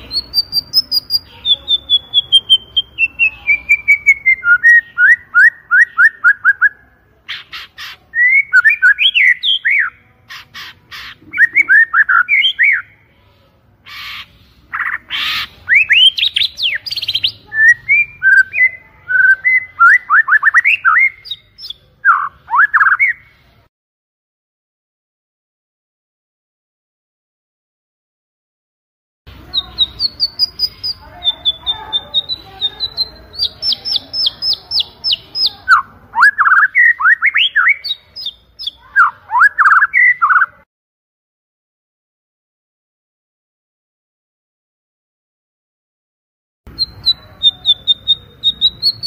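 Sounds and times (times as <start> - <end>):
songbird singing: 0.0 - 23.7, 29.3 - 40.7, 46.7 - 49.0.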